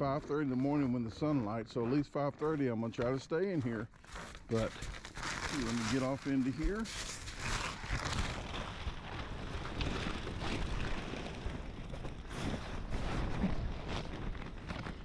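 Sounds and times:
tent fabric rustling: 4.0s - 15.0s.

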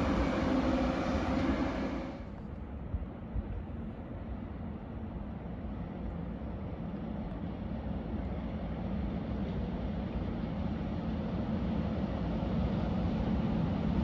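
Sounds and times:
freight train rumbling: 0.0s - 14.0s.

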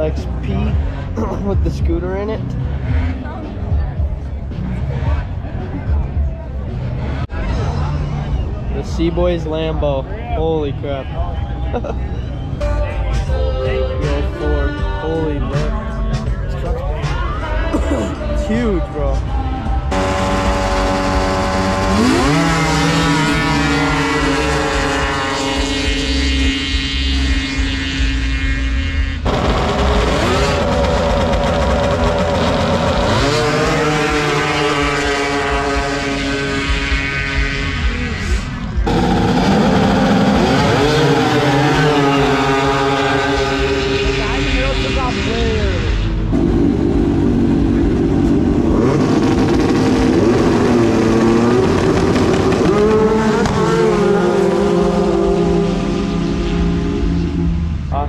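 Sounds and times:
snowmobile engines revving: 0.0s - 58.0s.

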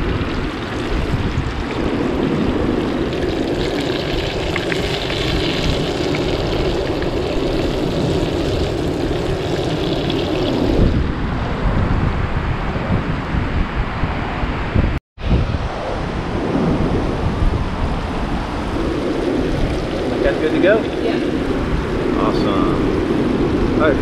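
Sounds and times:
chicken deep-frying in oil: 0.0s - 10.8s
wind rumble on microphone: 0.0s - 24.0s.

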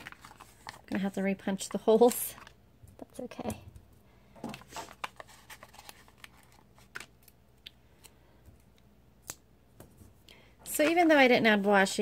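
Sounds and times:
paper rustling: 0.0s - 1.1s, 4.4s - 7.3s.

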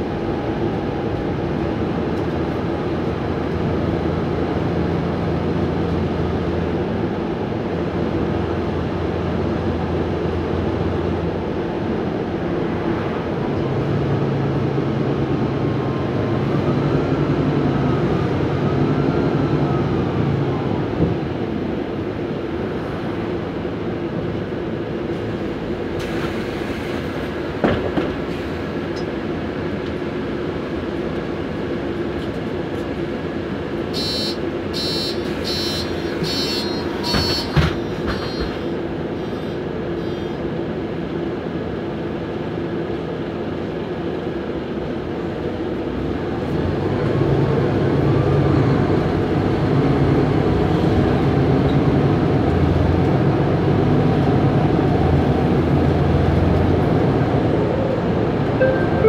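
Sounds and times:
bus engine drone: 0.0s - 59.0s
high beeps: 58.6s - 59.0s.

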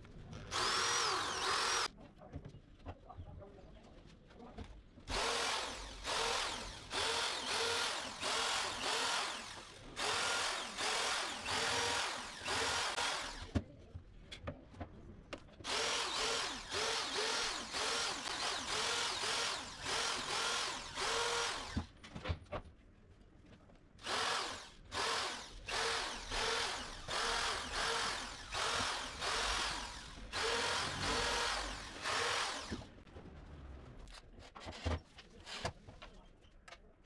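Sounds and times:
electric drill whining: 0.5s - 1.9s, 5.1s - 13.5s, 15.6s - 21.9s, 24.0s - 32.9s.

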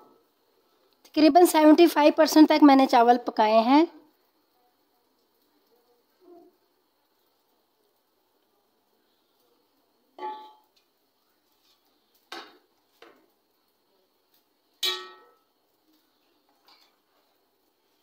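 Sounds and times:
metal spoon clinking on pot: 10.2s - 10.6s, 14.8s - 15.5s.

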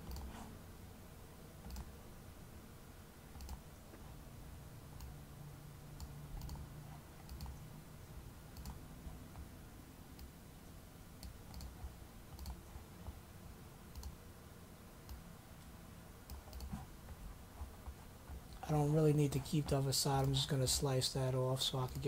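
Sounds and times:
computer mouse clicks: 0.0s - 0.5s, 1.6s - 1.9s, 3.3s - 3.6s, 5.0s - 5.2s, 6.0s - 7.6s, 8.5s - 9.5s, 11.2s - 13.2s, 13.9s - 14.2s, 15.0s - 15.2s, 16.2s - 18.6s
low room hum: 0.0s - 22.0s.

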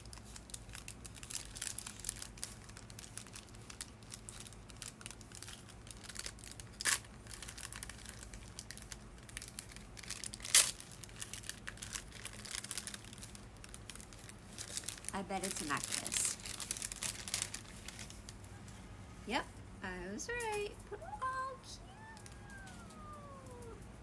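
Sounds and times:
paper crinkling and rustling: 0.0s - 18.4s
sharp paper crackles: 0.0s - 18.5s.

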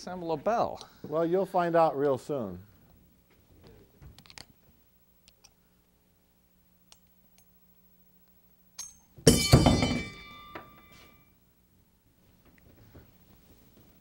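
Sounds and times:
bell falling with ringing clang: 8.8s - 11.3s.

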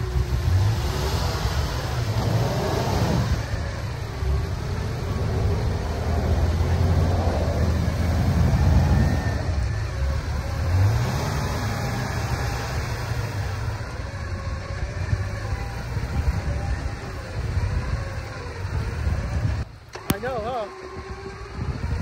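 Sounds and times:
truck engines revving: 0.0s - 22.0s.

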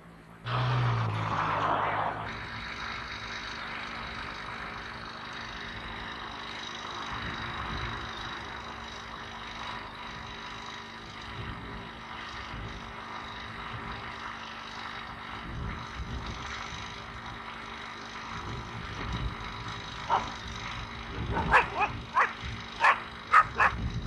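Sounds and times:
constant hum: 0.0s - 24.0s
low rumbles: 18.3s - 24.0s.

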